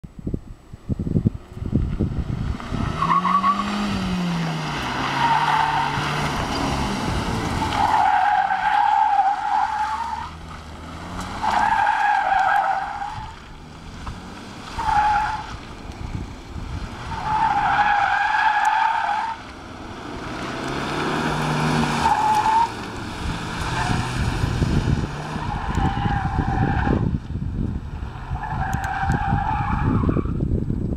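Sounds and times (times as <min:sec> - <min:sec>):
car engine revving: 0:01.6 - 0:27.2.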